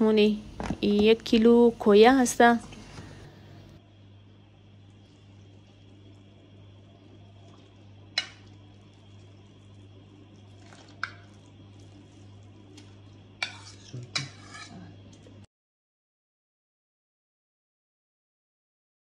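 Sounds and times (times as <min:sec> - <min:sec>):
low hum: 0:00.0 - 0:15.5
spoon clinking on ceramic bowl: 0:13.4 - 0:14.8.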